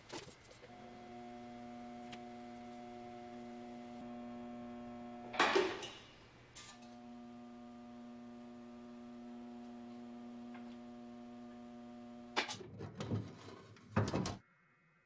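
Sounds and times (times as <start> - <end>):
electric motor humming: 0.5 - 12.5.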